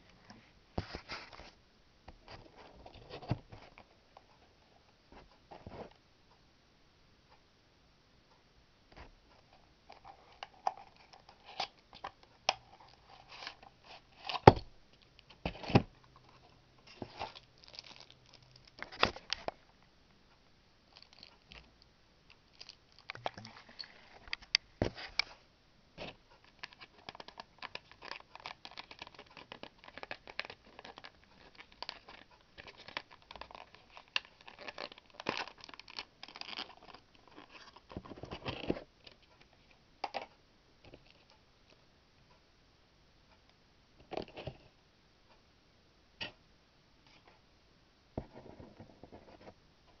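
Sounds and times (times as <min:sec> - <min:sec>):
plastic crinkling and tearing: 0:17.1 - 0:19.4, 0:26.5 - 0:38.6.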